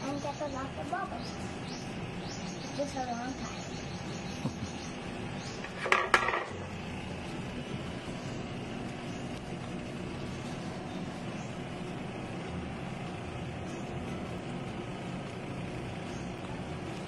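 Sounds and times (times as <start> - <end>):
steady kitchen drone: 0.0 - 17.0.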